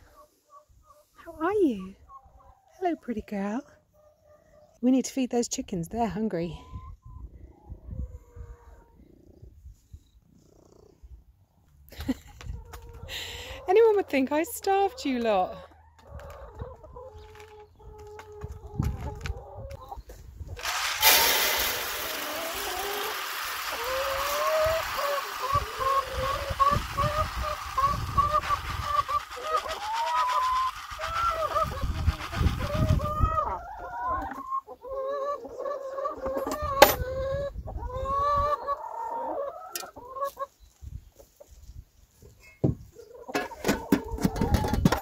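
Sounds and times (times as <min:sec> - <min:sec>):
hens clucking and calling: 0:00.0 - 0:04.7, 0:12.1 - 0:41.7, 0:42.8 - 0:45.0
feed pouring into feeder: 0:20.6 - 0:33.2
hens pecking in plastic bucket: 0:20.6 - 0:34.6, 0:43.2 - 0:45.0.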